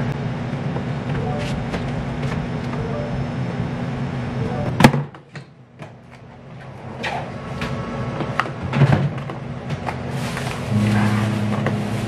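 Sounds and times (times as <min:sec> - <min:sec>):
kitchen hum: 0:09.6 - 0:12.0.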